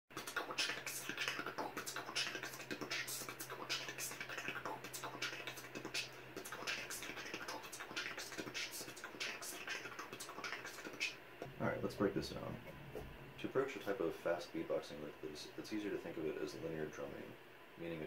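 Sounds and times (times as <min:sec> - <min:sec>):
beatboxing clicks and hisses: 0:00.1 - 0:11.2
low steady hum: 0:00.1 - 0:18.0.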